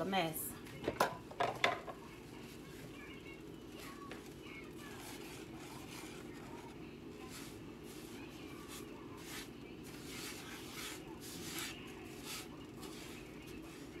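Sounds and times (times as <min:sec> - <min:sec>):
steady low hum: 0:00.0 - 0:14.0
spatula scraping sugar in pan: 0:04.8 - 0:14.0.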